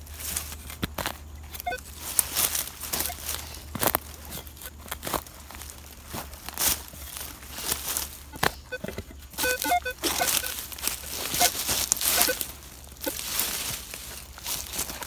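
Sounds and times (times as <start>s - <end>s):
shovel crunching leaves and soil: 0.0s - 15.0s.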